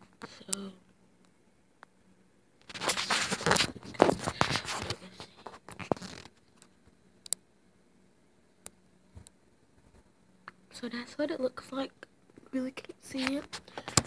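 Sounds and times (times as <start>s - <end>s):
handling noise rustling and scraping: 2.6s - 7.0s.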